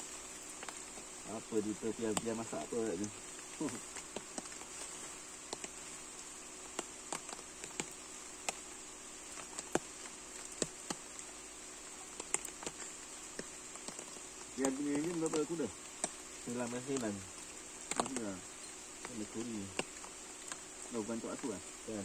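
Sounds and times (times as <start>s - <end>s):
insect chorus: 0.0s - 22.0s
light ticks and taps: 0.6s - 1.1s, 2.0s - 5.8s, 9.3s - 11.3s, 12.0s - 20.6s.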